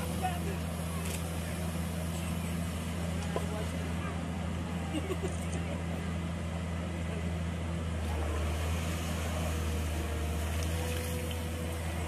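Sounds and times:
excavator diesel engine droning: 0:00.0 - 0:12.0.

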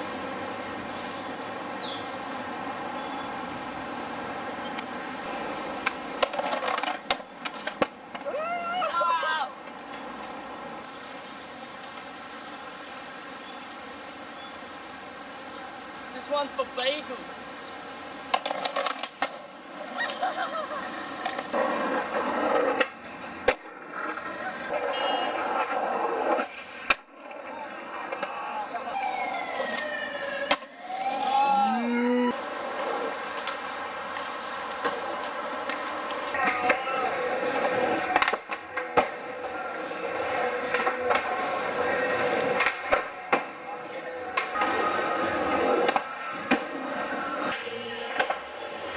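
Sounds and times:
skateboard wheels rolling on concrete: 0:00.0 - 0:48.9
skateboard clacking on ground: 0:04.7 - 0:12.2, 0:18.2 - 0:31.3, 0:32.4 - 0:48.9
skateboard clacking on ramp: 0:34.8 - 0:43.6.

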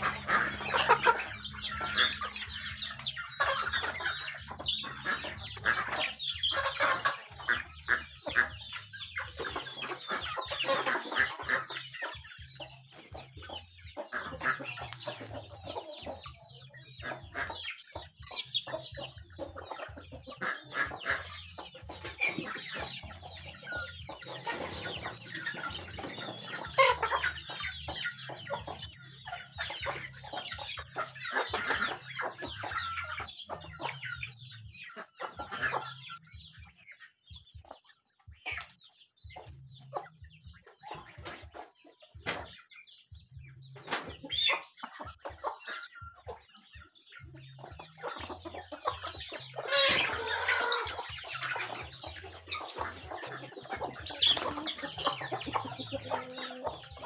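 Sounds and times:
chickens pecking taps: 0:00.0 - 0:12.2, 0:12.8 - 0:16.2, 0:39.4 - 0:47.0
chickens clucking: 0:00.0 - 0:57.0.

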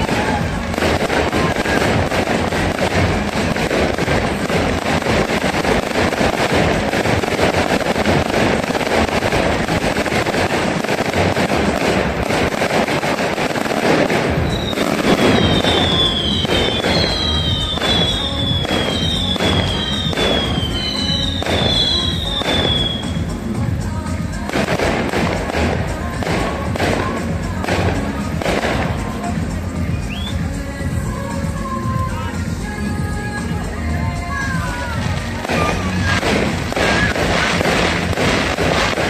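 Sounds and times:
fireworks crackling and popping: 0:00.0 - 0:39.0
high falling whistles: 0:14.4 - 0:23.1, 0:29.9 - 0:30.4.

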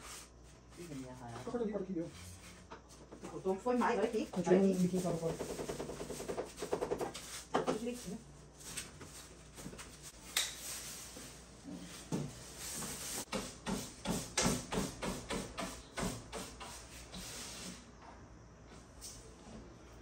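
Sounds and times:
broom sweeping on wood: 0:00.0 - 0:02.6, 0:03.3 - 0:05.4, 0:07.1 - 0:17.9.

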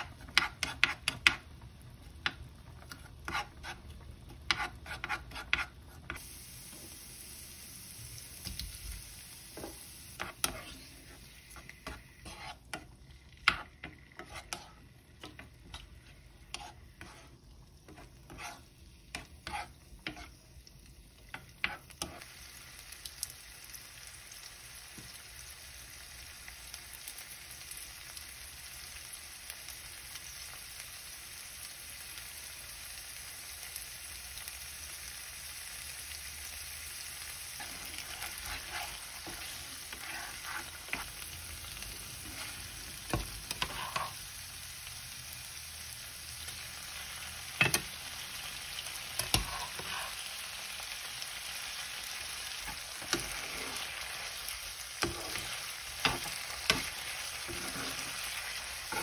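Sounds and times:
utensil scraping a pan: 0:00.0 - 0:01.4, 0:02.8 - 0:06.2, 0:09.6 - 0:20.4, 0:37.0 - 0:44.2, 0:49.1 - 0:50.4, 0:52.5 - 0:59.0
food sizzling in a frying pan: 0:00.0 - 0:59.0.

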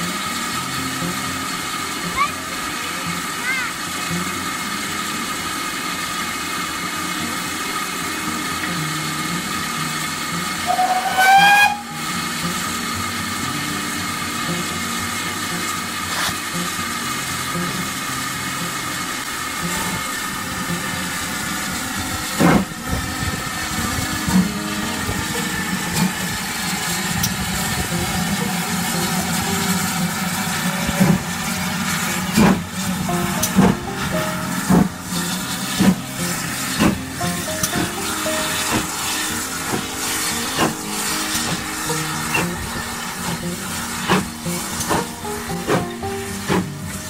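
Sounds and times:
steam hissing: 0:00.0 - 0:47.0
steam locomotive beats: 0:00.0 - 0:47.0
steam whistle blast: 0:10.2 - 0:13.0, 0:19.6 - 0:47.0.

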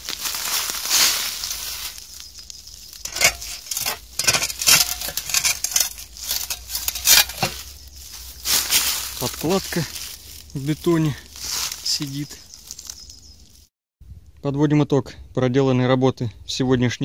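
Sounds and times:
rustling and scraping in leaves: 0:00.0 - 0:13.7
metallic knocks and clinks: 0:03.0 - 0:07.6.

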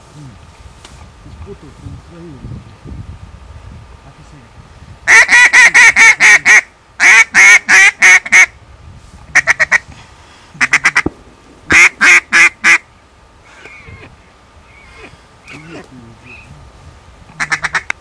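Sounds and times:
duck call chatter: 0:05.1 - 0:08.5, 0:09.3 - 0:09.8, 0:10.6 - 0:11.1, 0:11.7 - 0:12.8, 0:14.7 - 0:16.4, 0:17.3 - 0:18.0
duck call quacking: 0:05.1 - 0:08.5, 0:09.3 - 0:09.8, 0:10.6 - 0:11.1, 0:11.7 - 0:12.8, 0:17.3 - 0:18.0.

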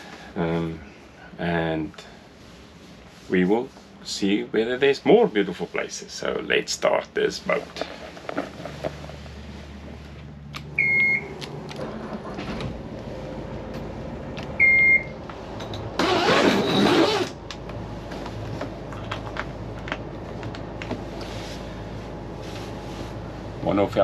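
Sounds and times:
diesel engines idling: 0:04.3 - 0:24.0
short high beeps: 0:10.8 - 0:11.3
engine cranking: 0:15.8 - 0:17.4.

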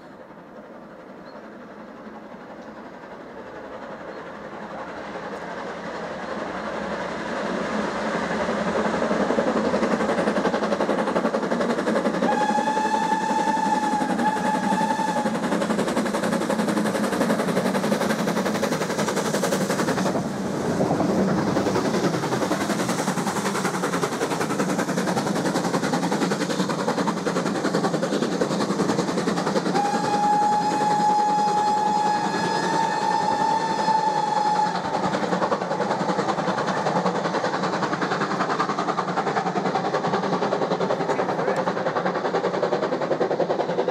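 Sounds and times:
steam train passing: 0:00.0 - 0:43.9
steam whistle: 0:12.2 - 0:15.5, 0:29.7 - 0:35.0.

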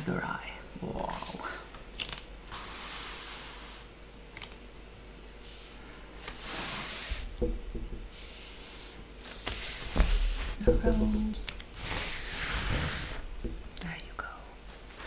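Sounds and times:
canvas rustling and rubbing: 0:08.2 - 0:13.3.

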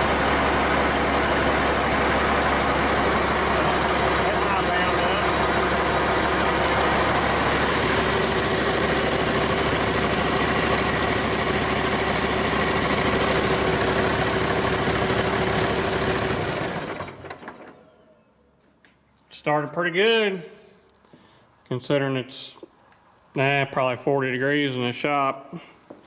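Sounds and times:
diesel engine running: 0:00.0 - 0:17.5.

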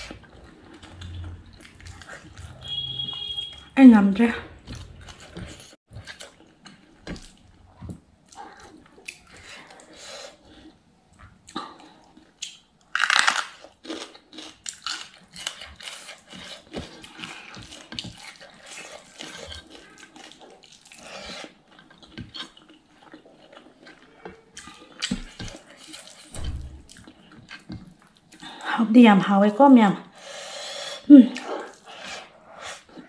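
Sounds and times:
wet chewing and lip smacking: 0:00.0 - 0:03.7.

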